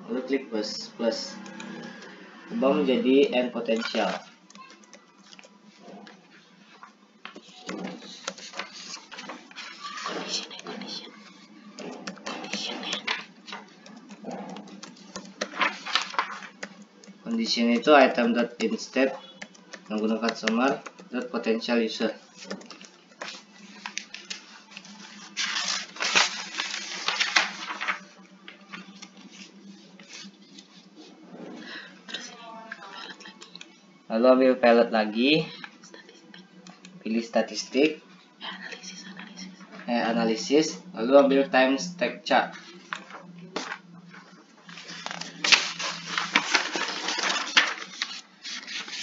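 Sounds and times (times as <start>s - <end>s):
crackling rustling and clicks: 11.8s - 17.9s, 44.7s - 49.0s
keyboard typing clicks: 18.6s - 21.3s, 22.4s - 23.0s.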